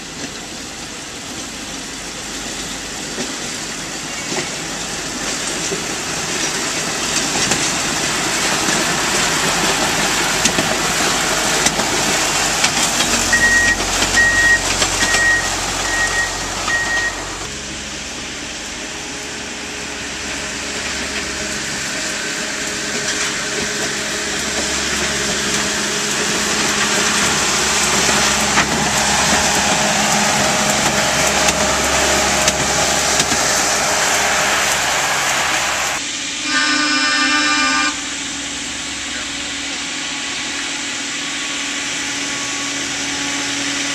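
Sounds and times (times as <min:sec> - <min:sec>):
diesel engines rolling on rails: 0:00.0 - 0:43.9
short high beeps: 0:13.2 - 0:17.4.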